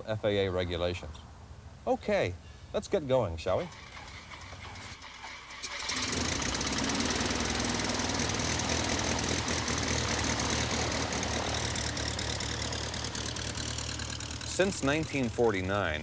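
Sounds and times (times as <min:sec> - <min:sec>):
airplane engine and propeller: 0:05.8 - 0:16.0.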